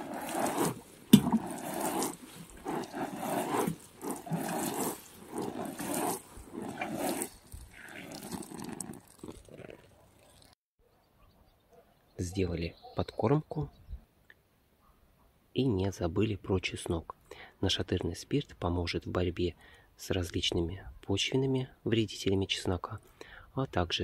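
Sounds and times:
water sprinkling from watering can: 0.0 - 10.5.

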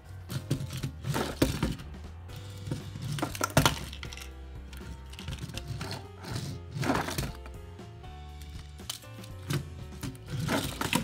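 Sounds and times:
background music with a beat: 0.0 - 11.0
plastic toy clattering on a table: 2.7 - 7.4, 8.8 - 11.0.

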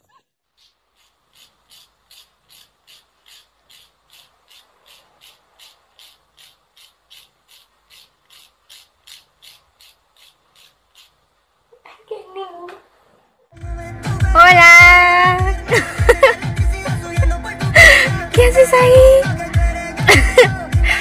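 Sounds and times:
nail file rasping: 0.5 - 11.3.

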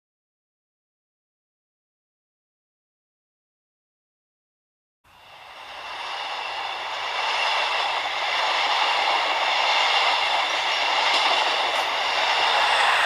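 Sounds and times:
model train running on track: 5.1 - 13.0.

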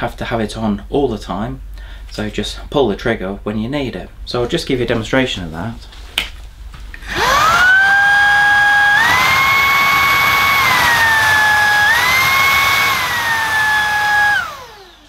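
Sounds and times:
cordless vacuum motor whining: 7.0 - 15.0.

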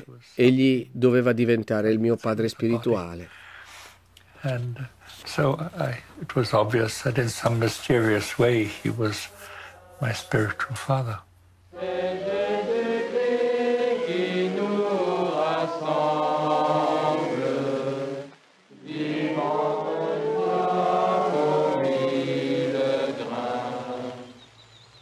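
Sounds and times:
men chanting: 6.8 - 11.2, 11.8 - 24.4.

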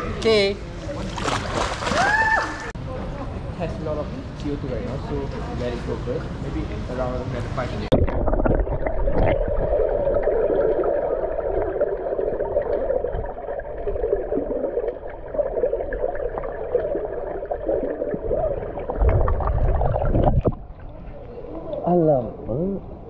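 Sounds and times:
low underwater rumble: 7.8 - 21.8.

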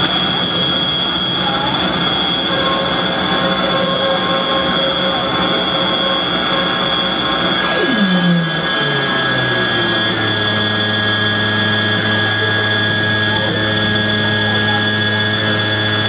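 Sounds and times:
high whistling tones: 0.0 - 16.0
tone sweeping down in pitch: 0.4 - 16.0
electronic noise music: 2.3 - 12.3.

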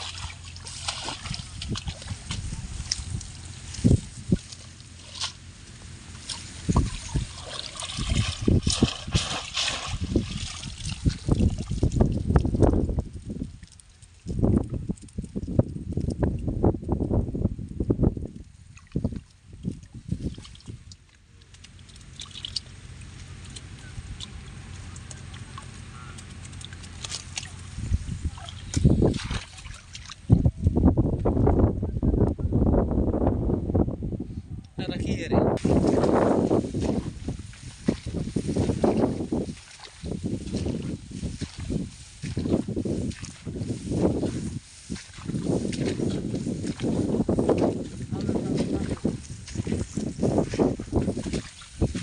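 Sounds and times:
wind buffeting microphone: 0.0 - 4.7, 6.2 - 20.9, 23.6 - 52.0
plant stalks rustling: 0.0 - 15.2, 35.6 - 52.0
wading steps in mud: 0.0 - 15.6, 18.4 - 30.4, 35.6 - 52.0
water splashing and dripping: 0.0 - 30.4, 35.6 - 52.0.

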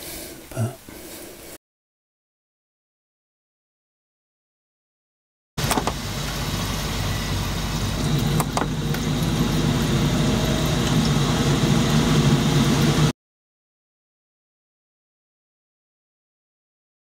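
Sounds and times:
gas boiler humming: 5.6 - 13.1.

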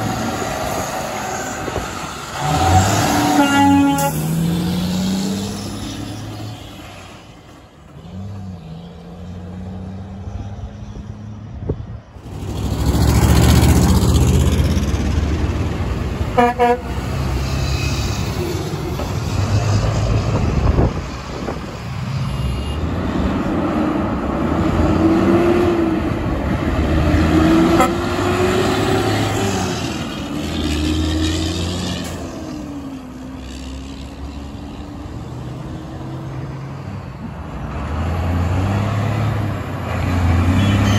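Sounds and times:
heavy trucks passing: 0.0 - 40.9
truck horns tooting: 2.4 - 4.8, 16.3 - 17.4, 22.1 - 23.0, 27.5 - 28.6, 40.2 - 40.9.

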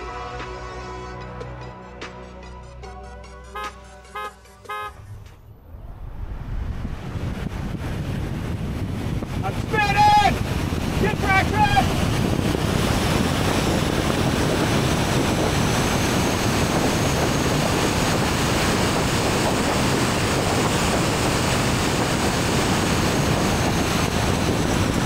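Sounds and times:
wind rushing over microphone: 5.0 - 25.0.

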